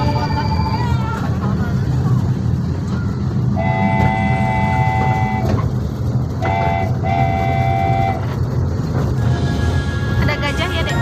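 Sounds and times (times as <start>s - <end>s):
train rumbling: 0.0s - 11.0s
train horn tooting: 3.6s - 5.6s, 6.4s - 8.4s.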